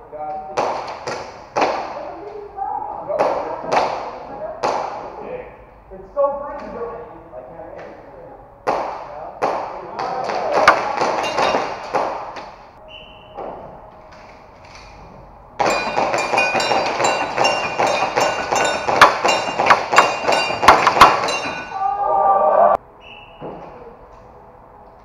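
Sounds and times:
pellets hitting metal targets: 10.5 - 12.4, 15.6 - 21.8.

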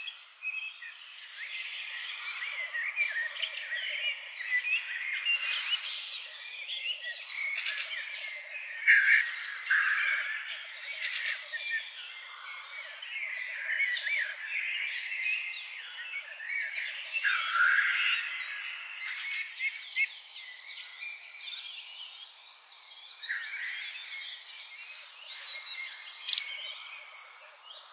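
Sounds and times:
short hissing bursts: 5.4 - 6.0.

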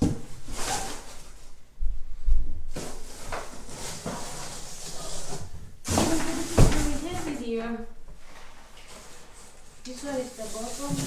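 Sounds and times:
plastic branches scraping cardboard: 8.9 - 11.0.

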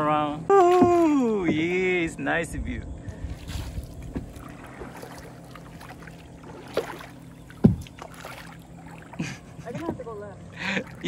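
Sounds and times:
paddles splashing in water: 0.0 - 2.1, 3.0 - 11.0
paddle knocks: 0.6 - 2.1, 4.0 - 5.2, 6.4 - 8.5, 9.6 - 10.3.

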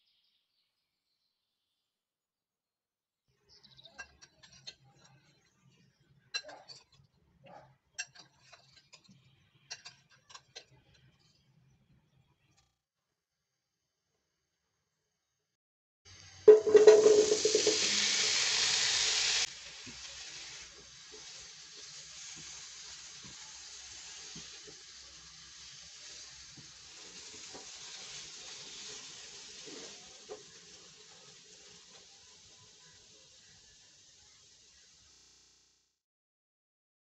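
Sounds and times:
potatoes sizzling in oil: 16.1 - 35.9
spatula tapping a pan: 16.5 - 18.0.

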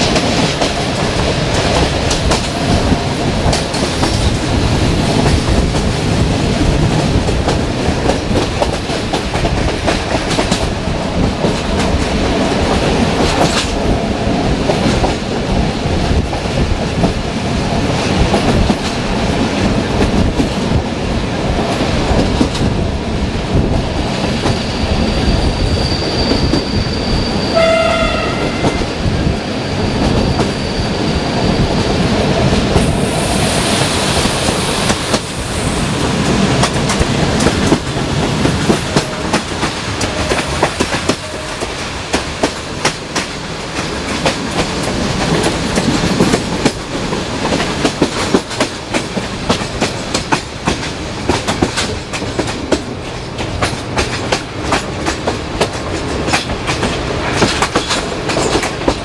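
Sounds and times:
train wheels clickety-clack: 0.0 - 59.0
wind rushing past window: 0.0 - 59.0
high wheel squeal: 24.5 - 28.9, 29.6 - 32.1
train horn note: 27.5 - 28.9, 40.0 - 41.9.

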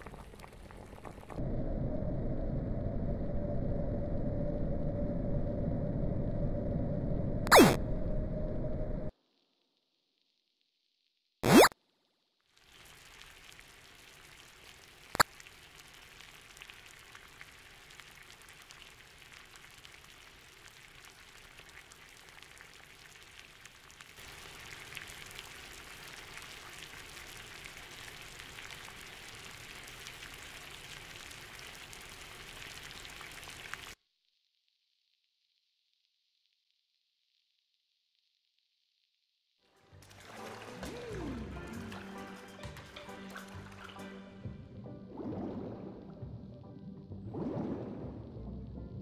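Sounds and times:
pot bubbling and hissing: 0.0 - 8.5, 12.5 - 34.0.

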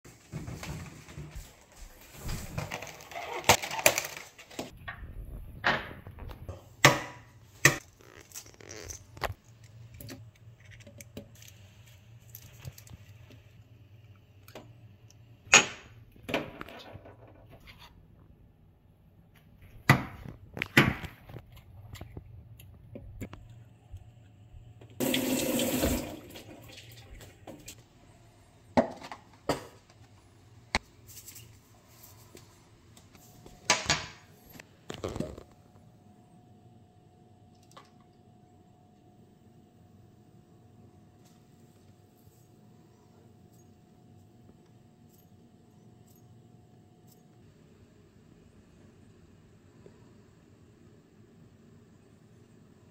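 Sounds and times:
running tap water: 25.0 - 27.8.

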